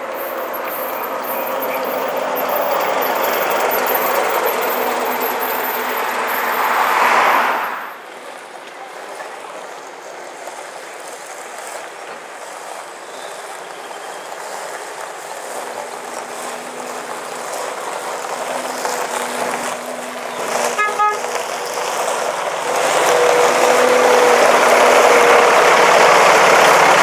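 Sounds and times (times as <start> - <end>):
bus horn toot: 0.0 - 8.0, 15.8 - 27.0
diesel bus driving past: 0.0 - 27.0.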